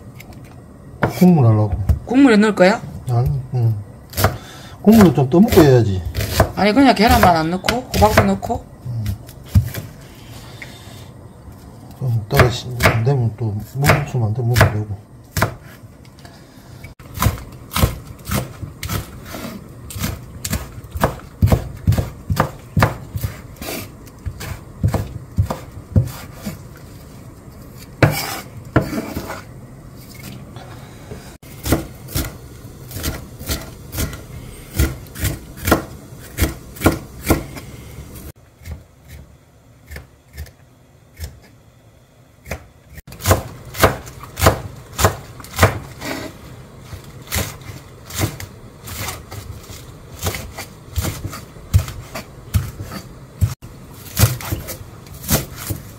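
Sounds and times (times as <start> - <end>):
knife chopping on wooden board: 4.1 - 8.4, 12.4 - 13.1, 13.8 - 15.8, 17.1 - 26.6, 28.0 - 29.4, 31.6 - 37.6, 42.4 - 46.3, 50.2 - 55.9.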